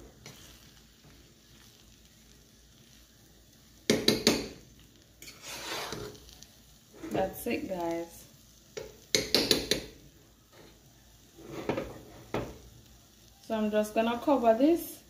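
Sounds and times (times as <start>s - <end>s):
fork scraping metal saucepan: 5.2s - 6.2s.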